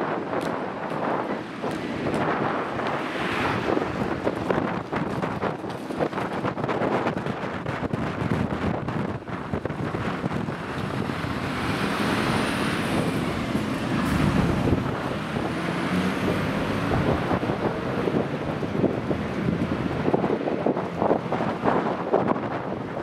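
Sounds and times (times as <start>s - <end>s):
wind rumbling on microphone: 0.0s - 23.0s
fire engine diesel driving past: 10.5s - 21.3s.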